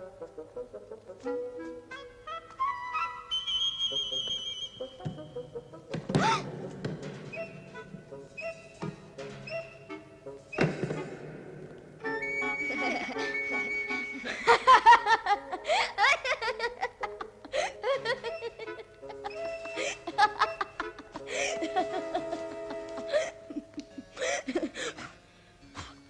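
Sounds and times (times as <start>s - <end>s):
background music with held notes: 0.0s - 26.0s
children laughing: 12.6s - 25.2s.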